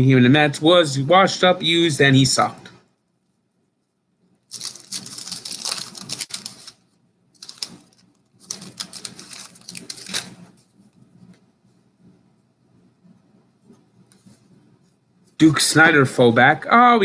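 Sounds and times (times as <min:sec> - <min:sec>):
cards rustling and flicking: 0:04.5 - 0:06.8, 0:07.4 - 0:10.6.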